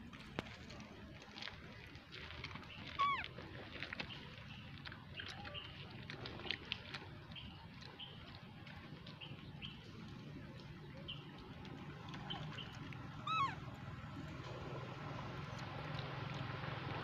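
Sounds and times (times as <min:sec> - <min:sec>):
infant monkey squealing: 0:02.9 - 0:03.3, 0:13.2 - 0:13.7.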